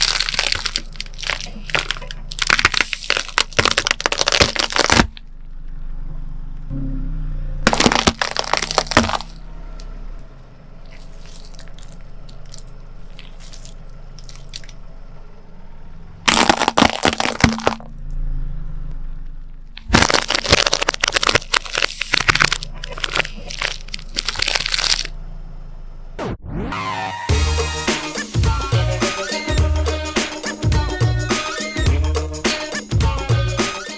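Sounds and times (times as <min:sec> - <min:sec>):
walnut shells cracking under tyre: 0:00.0 - 0:05.7, 0:07.7 - 0:09.9, 0:10.8 - 0:14.8, 0:16.3 - 0:18.0, 0:19.4 - 0:25.2.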